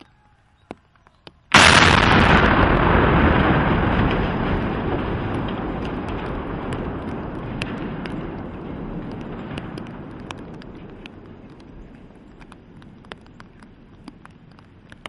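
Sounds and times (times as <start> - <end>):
rumbling crash of bridge collapsing: 1.5 - 13.9
sharp cracks of debris: 1.5 - 15.0.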